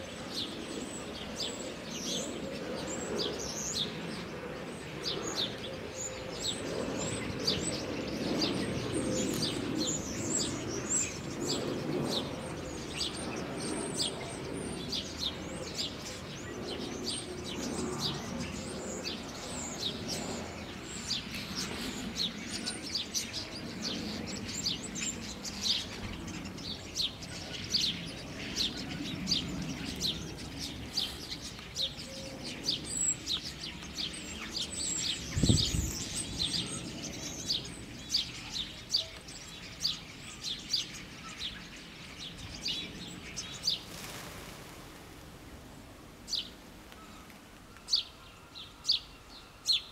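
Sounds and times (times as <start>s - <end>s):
small birds chirping: 0.0s - 44.2s
steady low background noise: 41.0s - 49.9s.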